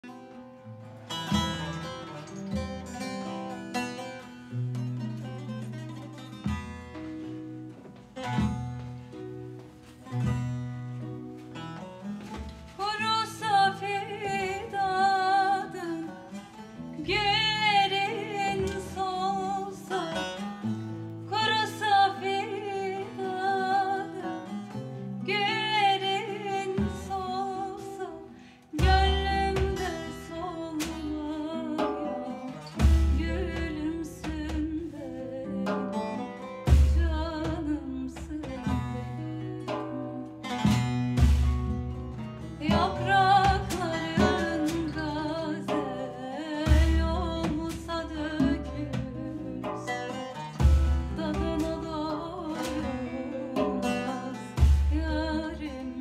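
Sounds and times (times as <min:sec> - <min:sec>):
lute and acoustic guitar playing: 0:00.0 - 0:56.0
woman singing with vibrato: 0:12.7 - 0:41.0, 0:42.4 - 0:56.0.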